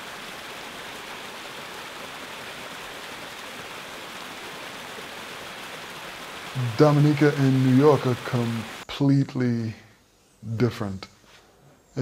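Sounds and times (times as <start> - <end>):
stream cascading over rocks: 0.0 - 8.8.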